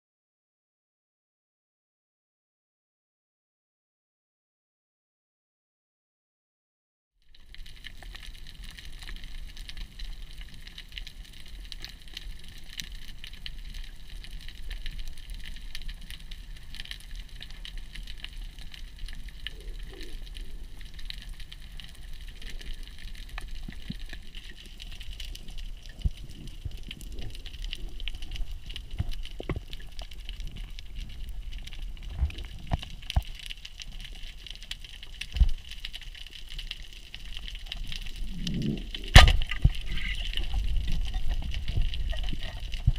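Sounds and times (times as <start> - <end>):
underwater crackle of clicks: 7.3 - 42.9
low underwater rumble: 37.0 - 42.9.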